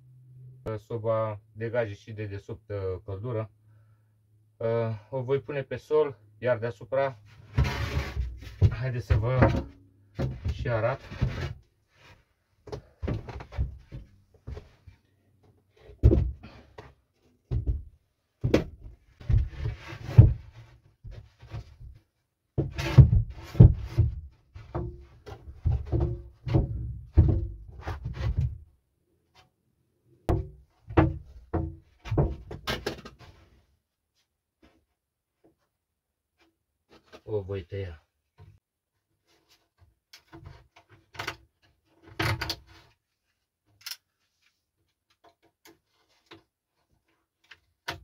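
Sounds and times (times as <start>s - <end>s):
board thunking on floor: 16.0s - 16.6s, 17.5s - 22.0s, 22.6s - 28.6s, 30.3s - 33.2s.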